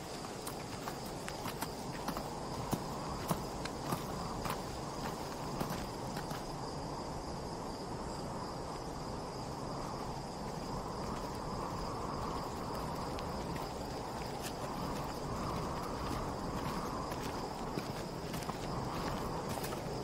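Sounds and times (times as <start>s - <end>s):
wind rushing: 2.1s - 20.0s
insect trilling: 9.3s - 20.0s.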